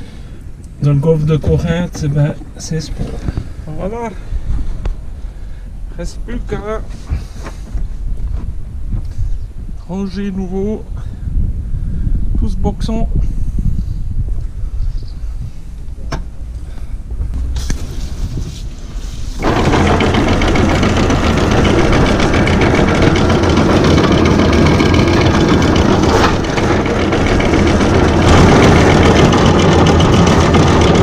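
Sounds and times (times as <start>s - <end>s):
motor running: 19.3s - 31.0s.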